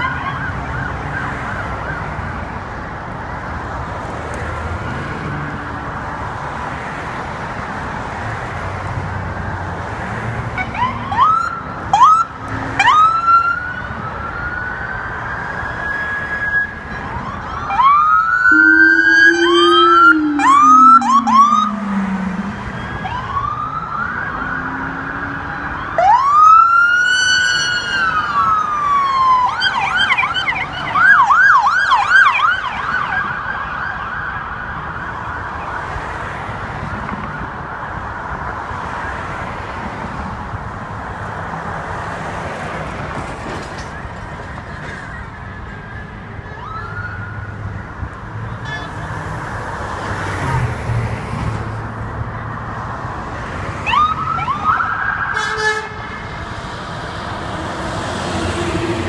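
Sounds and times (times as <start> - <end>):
passing vehicles rumble: 0.0 - 59.0
police siren whoops and chirps: 10.6 - 35.8, 53.8 - 55.6.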